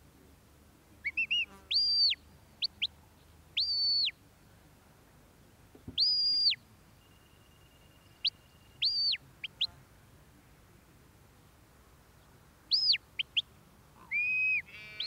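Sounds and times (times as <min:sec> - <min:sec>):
shepherd's whistle: 0:01.1 - 0:02.2, 0:03.6 - 0:04.1, 0:06.0 - 0:06.6, 0:08.2 - 0:09.2, 0:14.1 - 0:14.7.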